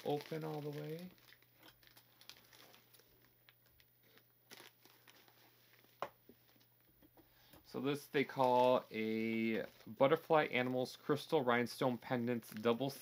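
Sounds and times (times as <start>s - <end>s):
plastic package crinkling: 0.0s - 6.7s, 12.1s - 13.0s.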